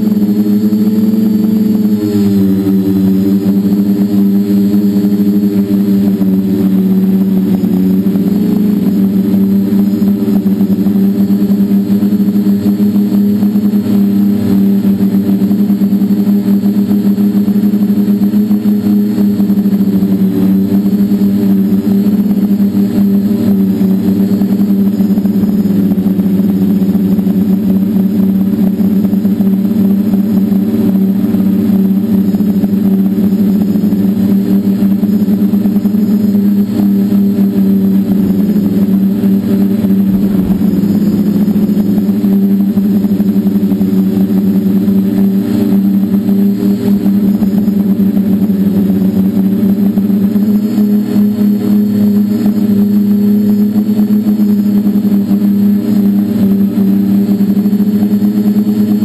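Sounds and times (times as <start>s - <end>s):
drone propellers buzzing: 0.0s - 59.0s.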